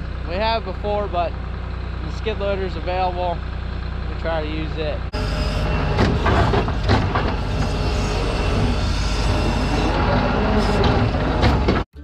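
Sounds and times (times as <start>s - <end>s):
machinery engine drone: 0.0s - 12.0s
knocks and rattles: 5.8s - 8.9s, 10.0s - 11.9s.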